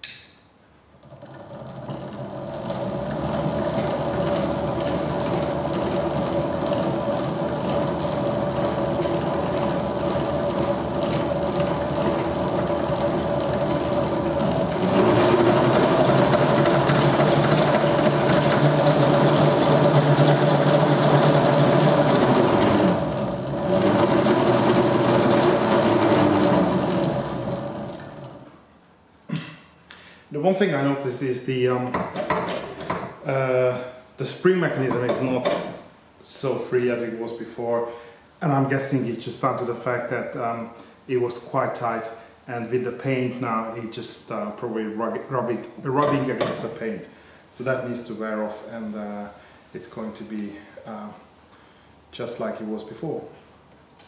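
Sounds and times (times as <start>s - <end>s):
electric motors whining: 1.0s - 28.6s.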